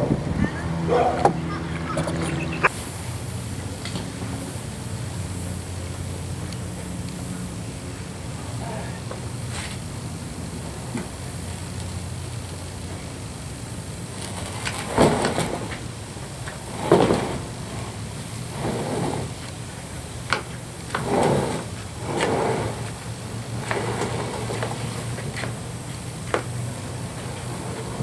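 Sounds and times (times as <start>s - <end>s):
plastic hull scraping on wood: 14.1s - 15.9s, 16.5s - 19.6s, 20.3s - 25.6s.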